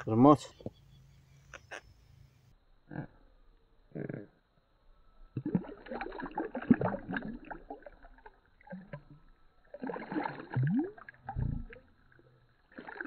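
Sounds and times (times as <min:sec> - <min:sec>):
water splashing and lapping: 0:05.3 - 0:13.0.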